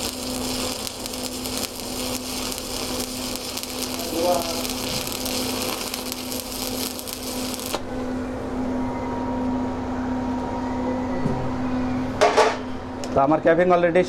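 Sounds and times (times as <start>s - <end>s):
welding arc crackling: 0.0s - 7.9s
steady low hum: 0.0s - 14.0s.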